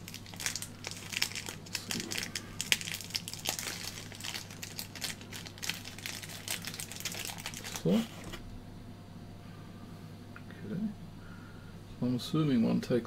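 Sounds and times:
plastic packet crinkling: 0.0s - 8.4s.

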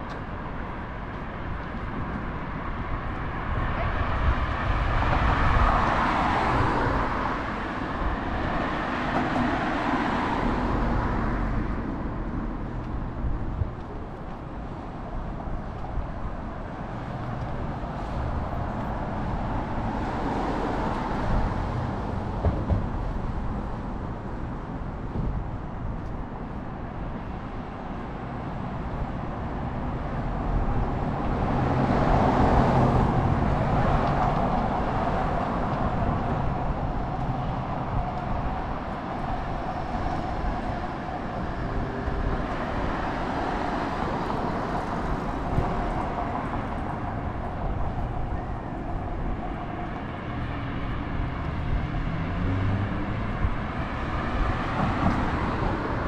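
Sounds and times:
steady road rumble: 0.0s - 56.0s
vehicles passing: 0.0s - 56.0s.

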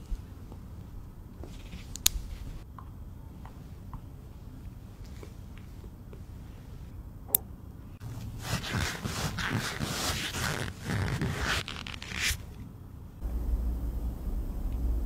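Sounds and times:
steady low hum: 0.0s - 15.0s
cotton swab rubbing in ear: 8.0s - 12.6s.

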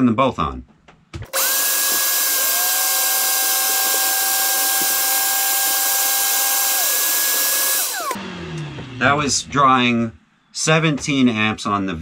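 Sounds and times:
shop vac and sander running: 1.3s - 9.2s.

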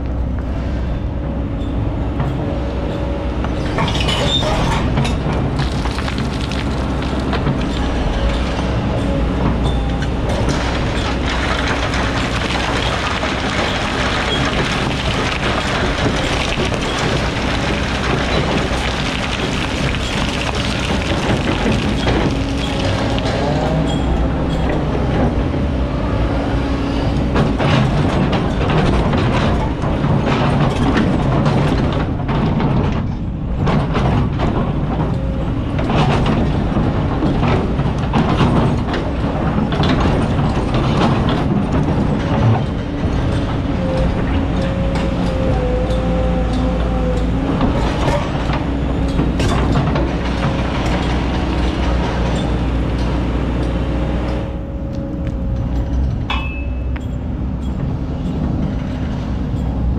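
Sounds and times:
excavator diesel engine running: 0.0s - 59.9s
rocks clattering against bucket: 3.8s - 7.8s, 10.4s - 23.8s
steel bucket scraping sand and stones: 10.5s - 24.1s.

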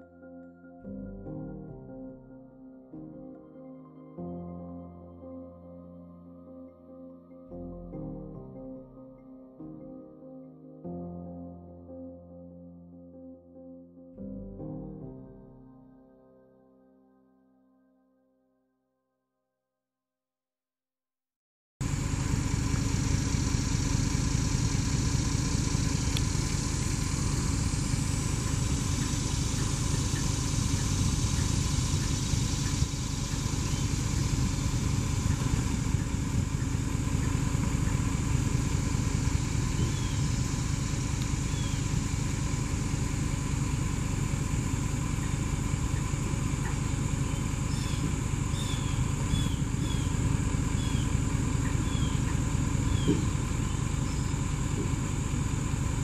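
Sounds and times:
engine idling: 21.8s - 56.0s
high falling chirps: 22.4s - 55.6s.

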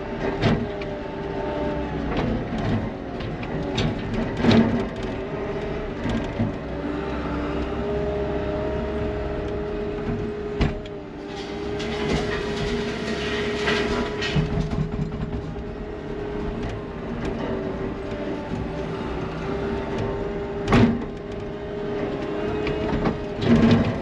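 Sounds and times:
diesel engine running under load: 0.0s - 24.0s
hydraulic whine: 10.6s - 15.7s
dirt and rocks spilling onto steel: 11.2s - 14.8s.

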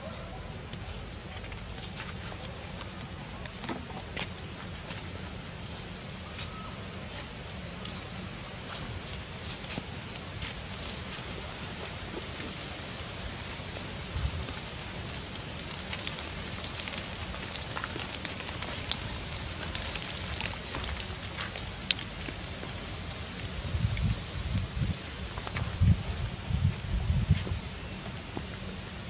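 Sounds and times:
steady outdoor hiss: 0.0s - 29.0s
light crackles and ticks: 13.7s - 23.4s.

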